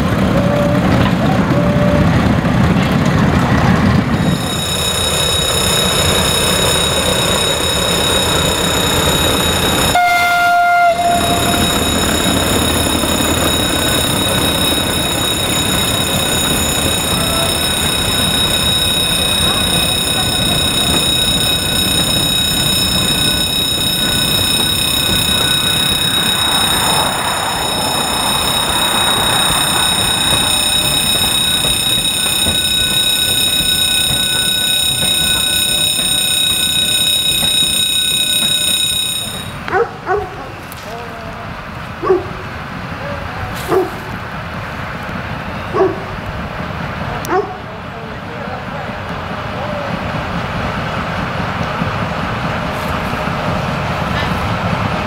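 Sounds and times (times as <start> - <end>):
diesel locomotive engine running: 0.0 - 55.0
train wheels rolling on rails: 0.0 - 55.0
constant high-pitched tone: 4.1 - 39.7
level crossing alarm ringing: 4.1 - 39.8.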